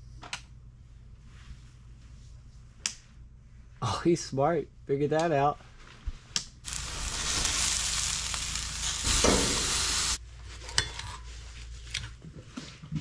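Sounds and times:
steaks sizzling on a grill: 0:06.7 - 0:10.2.

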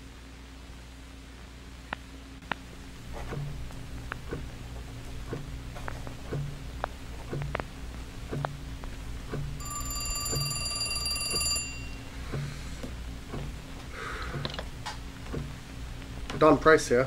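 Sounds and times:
old telephone bell ringing: 0:09.6 - 0:12.2.

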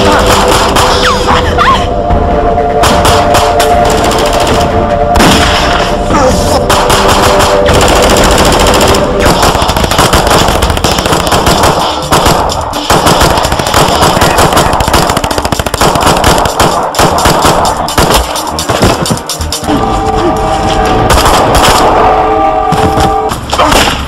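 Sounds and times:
rapid pistol shots: 0:00.0 - 0:01.0, 0:02.8 - 0:04.6, 0:06.7 - 0:19.4
film music score: 0:00.0 - 0:24.0.

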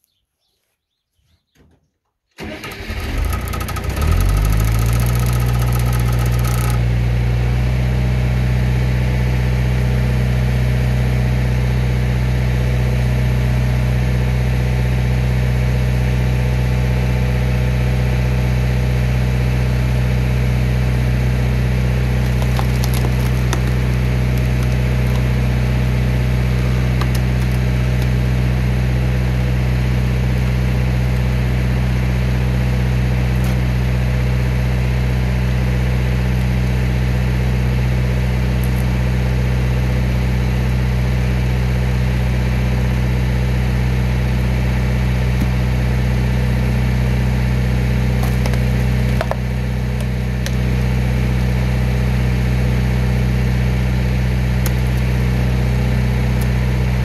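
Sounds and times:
engine starting and running: 0:02.3 - 0:07.6, 0:21.0 - 0:57.0.

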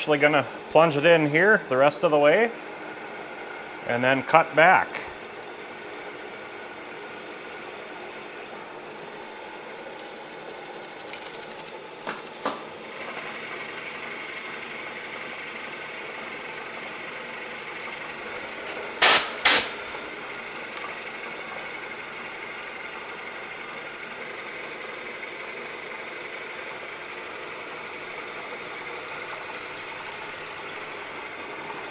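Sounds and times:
milling machine hum: 0:00.0 - 0:31.9
sharp loud clacks: 0:19.0 - 0:19.8.

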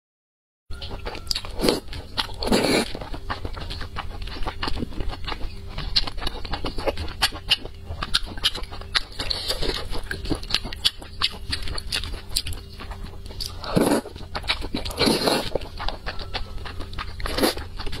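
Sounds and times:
moist chewing: 0:00.7 - 0:18.0
slurping soft food: 0:01.6 - 0:03.0, 0:13.4 - 0:16.0, 0:17.0 - 0:17.7.

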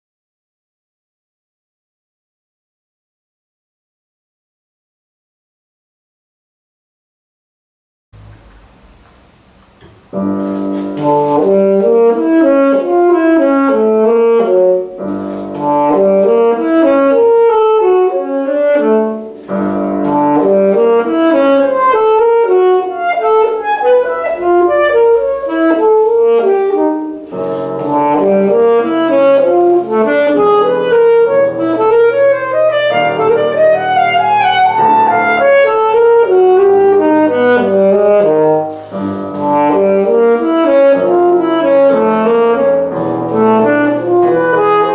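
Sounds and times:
grand piano accompaniment: 0:08.2 - 0:44.9
saxophone playing fast runs: 0:10.1 - 0:44.9.

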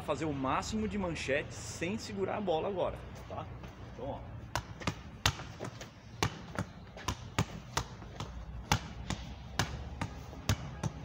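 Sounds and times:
ball striking wall and forearms: 0:04.5 - 0:11.0.

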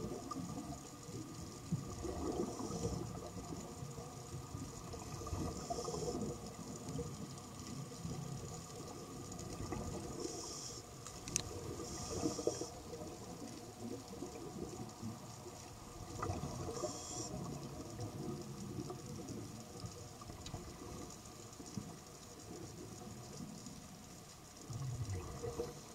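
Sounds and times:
bubbling of exhaled air underwater: 0:00.0 - 0:24.0, 0:24.6 - 0:25.9
hissing inhalations through regulator: 0:02.2 - 0:03.3, 0:05.3 - 0:06.5, 0:10.0 - 0:13.0, 0:16.6 - 0:17.6.

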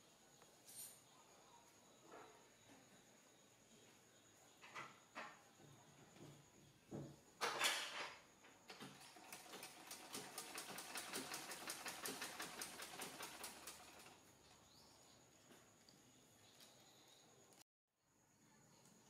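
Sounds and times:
sewing machine ticking: 0:08.8 - 0:14.2.

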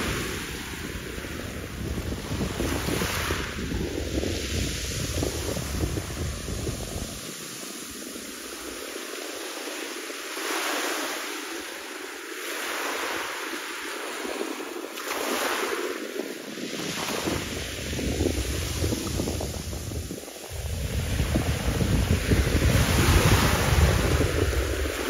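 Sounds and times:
wind buffeting microphone: 0:00.0 - 0:09.0, 0:14.0 - 0:25.0.

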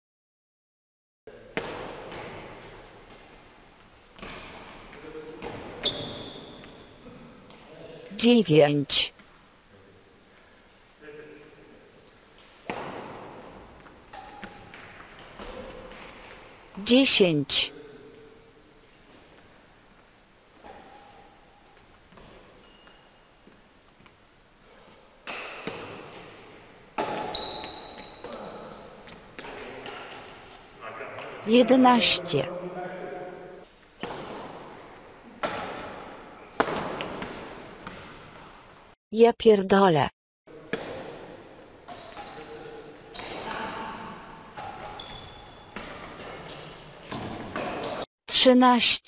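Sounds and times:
rackets hitting shuttlecock: 0:01.5 - 0:03.2, 0:12.6 - 0:16.4, 0:25.2 - 0:26.2, 0:26.9 - 0:28.4, 0:34.0 - 0:34.7, 0:35.4 - 0:38.1, 0:40.7 - 0:41.3, 0:44.6 - 0:48.0
badminton racket hitting shuttlecock: 0:27.0 - 0:28.4, 0:34.0 - 0:34.6.

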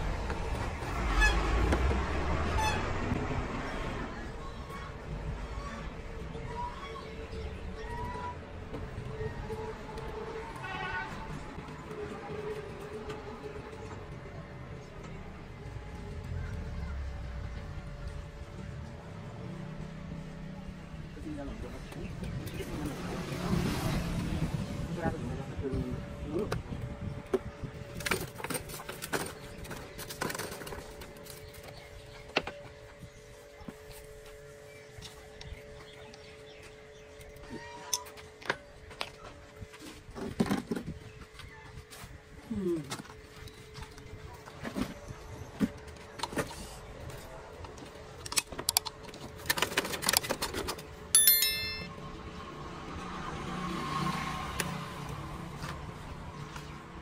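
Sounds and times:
sharp metallic clang: 0:51.2 - 0:52.0.

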